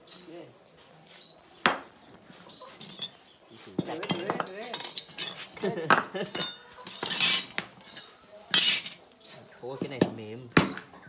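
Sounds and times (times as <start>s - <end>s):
knives clinking together: 4.1s - 5.6s, 6.4s - 9.0s
loud metal scrape: 6.9s - 7.6s.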